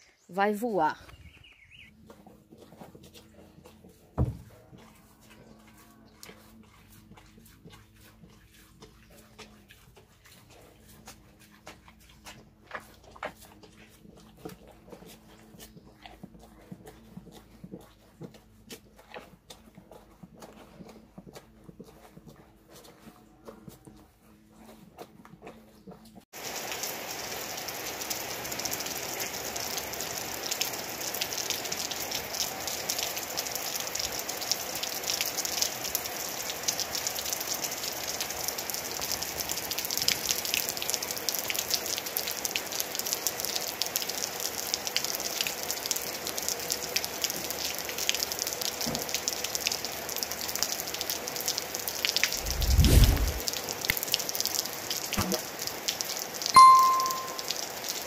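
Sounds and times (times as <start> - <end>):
steady rain falling: 26.4 - 58.0
low rumble: 52.4 - 53.5.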